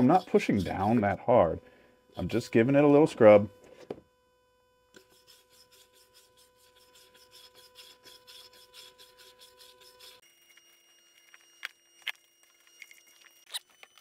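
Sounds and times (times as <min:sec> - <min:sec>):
wire brush scrubbing metal: 0:00.0 - 0:01.2, 0:05.0 - 0:10.2.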